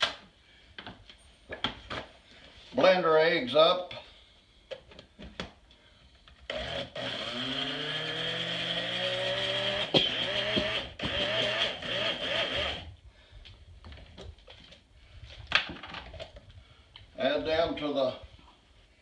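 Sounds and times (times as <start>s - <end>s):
blender motor whipping eggs: 6.5s - 12.9s.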